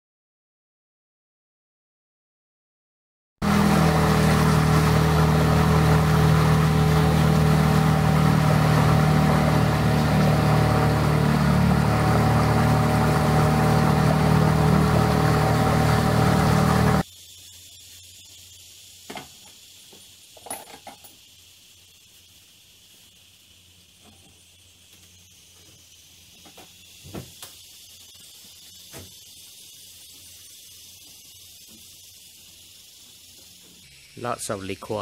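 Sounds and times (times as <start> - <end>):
boat engine running: 3.4 - 17.0.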